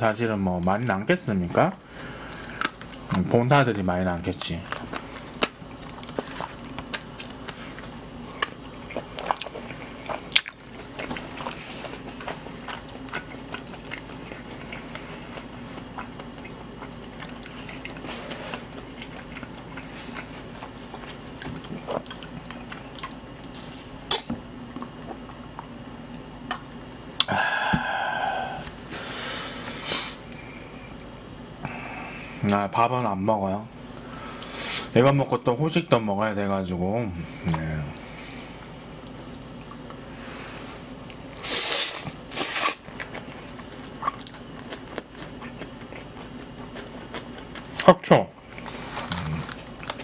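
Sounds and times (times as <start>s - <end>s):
steady low hum: 0.0s - 50.0s
chewing and biting: 4.3s - 23.7s, 40.9s - 50.0s.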